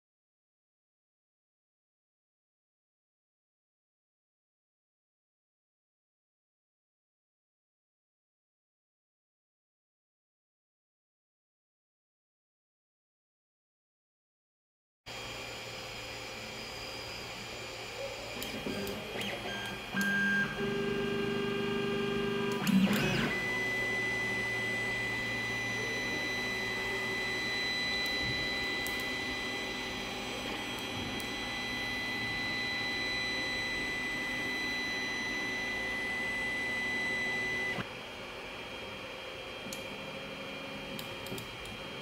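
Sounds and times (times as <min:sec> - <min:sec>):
stepper motors whining: 0:16.0 - 0:37.9.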